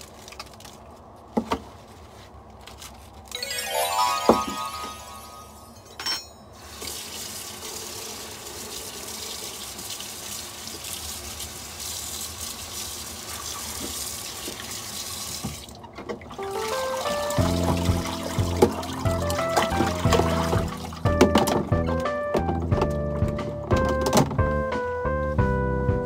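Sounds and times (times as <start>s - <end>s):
tap water running into basin: 6.8s - 15.8s, 17.4s - 21.1s.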